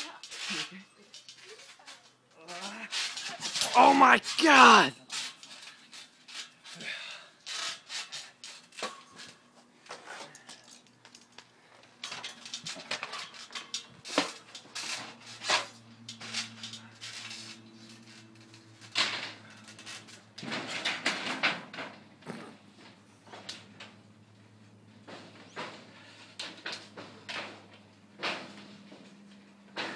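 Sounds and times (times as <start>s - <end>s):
people bouncing on trampoline: 0.0s - 7.9s
metallic clattering on shed: 12.0s - 29.9s.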